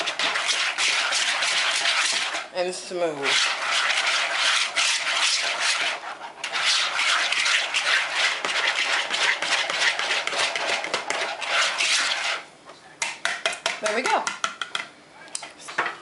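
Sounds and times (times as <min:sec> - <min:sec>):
whisk scraping a mixing bowl: 0:00.0 - 0:12.5.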